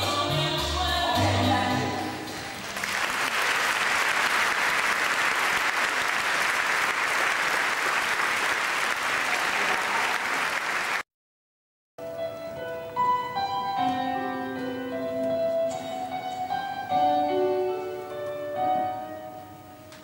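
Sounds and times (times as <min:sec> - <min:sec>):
audience applauding: 0:02.6 - 0:11.0.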